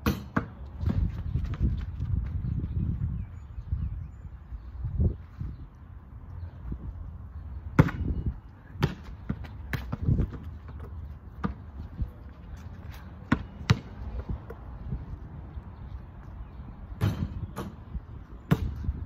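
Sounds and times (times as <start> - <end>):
basketball striking a hoop: 0.0 - 1.1, 7.8 - 8.2, 13.3 - 13.9, 17.0 - 17.8, 18.5 - 19.0
basketball bouncing on pavement: 0.0 - 2.8, 7.4 - 15.4, 16.9 - 19.0.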